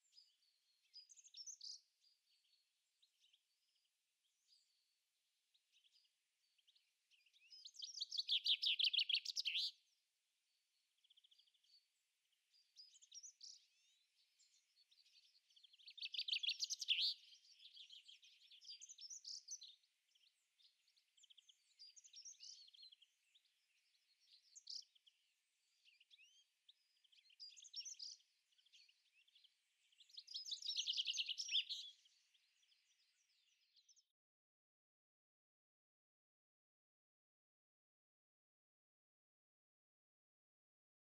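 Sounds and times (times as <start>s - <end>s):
bird chirps and calls: 7.1s - 9.8s, 12.5s - 25.1s, 25.7s - 34.1s.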